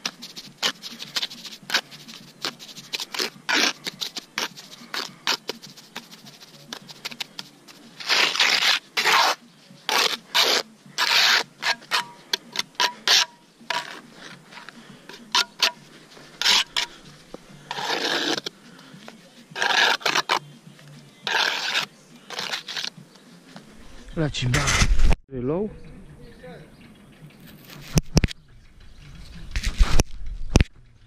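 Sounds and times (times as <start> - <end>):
tool scraping masonry: 0.0 - 20.5, 21.2 - 22.9.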